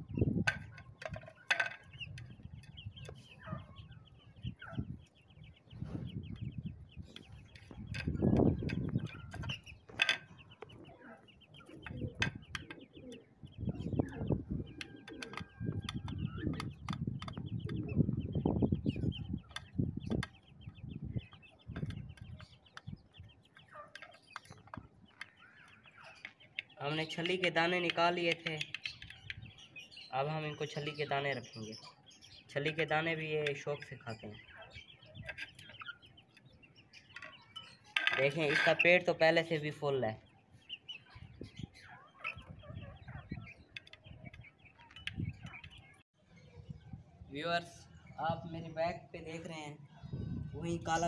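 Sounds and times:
young chickens clucking softly: 0.0 - 29.9, 31.9 - 38.9, 40.6 - 47.1
high chirping: 0.0 - 51.0
beaks clicking on a plate: 21.3 - 29.6.

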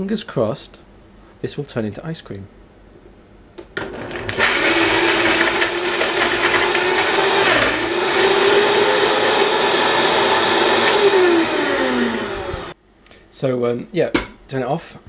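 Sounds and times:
blender motor running: 3.8 - 12.8.

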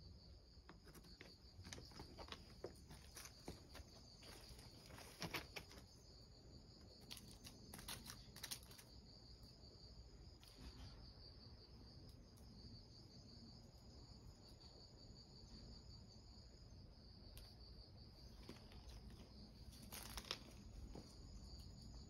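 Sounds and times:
high-pitched insect trill: 0.0 - 22.0
cat paws on gravel: 0.7 - 6.0.

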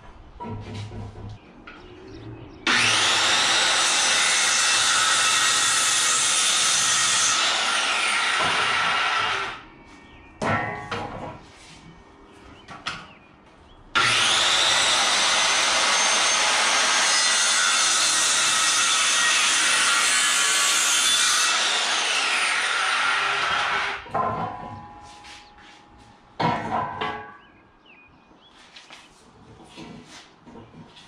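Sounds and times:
circular saw cutting wood: 2.7 - 9.6, 14.0 - 24.1.

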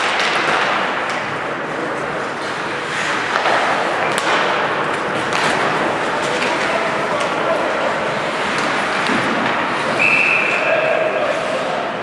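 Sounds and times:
hockey sticks and puck clacking: 0.0 - 12.0
crowd voices and cheering: 5.8 - 12.0.

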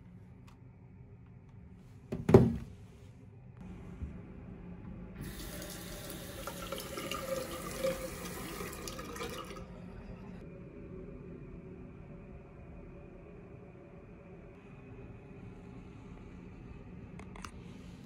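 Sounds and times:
tap water pouring into sink: 5.2 - 9.6.

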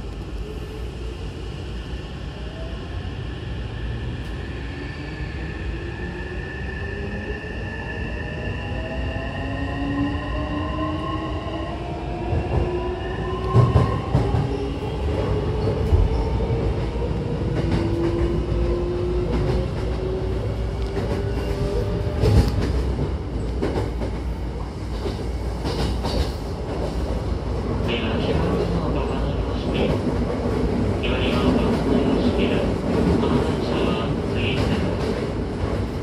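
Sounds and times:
wheels rumbling on rail: 13.5 - 36.0.

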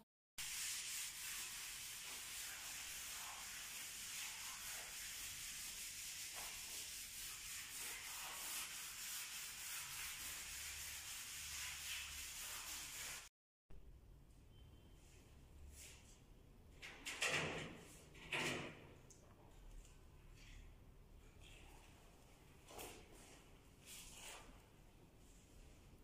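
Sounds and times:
sponge scrubbing grout on tiles: 0.4 - 13.3.

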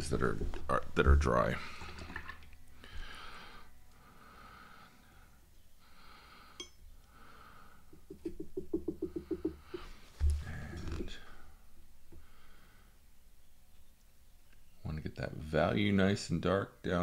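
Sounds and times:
soft breathing: 1.6 - 8.2, 9.1 - 13.2
light clink: 6.6 - 6.8.

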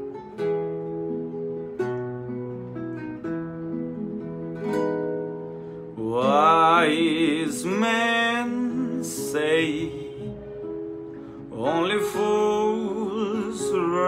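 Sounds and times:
acoustic guitar picking: 0.0 - 14.0
man singing: 5.9 - 10.7, 11.4 - 14.0.

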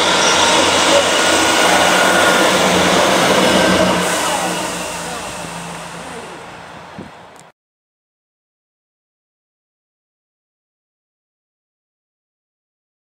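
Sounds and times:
diesel train passing: 0.0 - 7.5.

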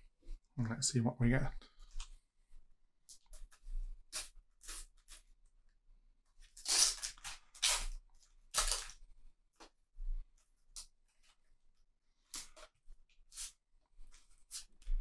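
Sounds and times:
sticker packets tearing: 6.6 - 9.0.

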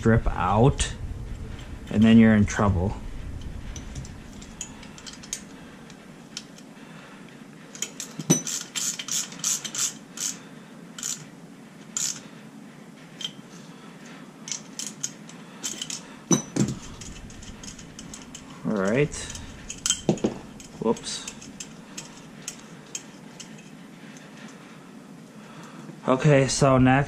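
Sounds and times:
metal parts and tools clinking: 3.4 - 5.6, 7.7 - 10.4, 11.0 - 11.3, 11.9 - 12.3, 13.1 - 13.7, 14.4 - 24.6.

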